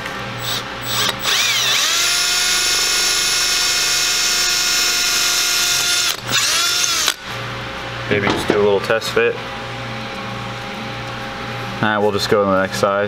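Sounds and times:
cordless drill whine: 0:00.4 - 0:07.2.

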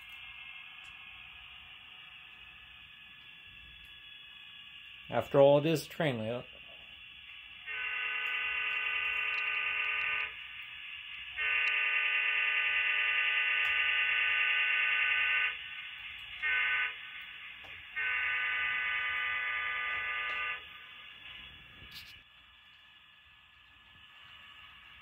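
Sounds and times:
model locomotive horn blowing: 0:07.6 - 0:10.4, 0:11.4 - 0:15.5, 0:16.4 - 0:17.0, 0:18.0 - 0:20.6.

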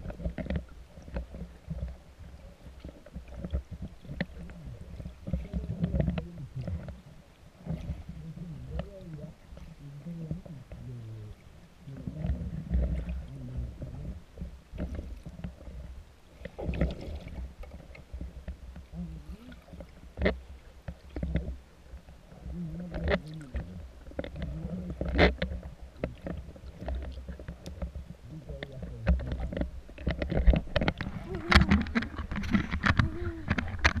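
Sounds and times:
splashes: 0:00.0 - 0:21.6, 0:22.3 - 0:34.0
muffled water sloshing and bubbling: 0:00.0 - 0:34.0.

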